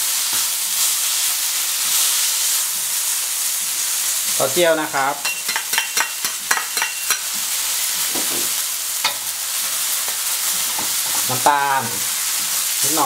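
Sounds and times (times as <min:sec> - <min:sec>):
greens sizzling in a wok: 0:00.0 - 0:13.0
metal ladle clinking: 0:05.2 - 0:07.3.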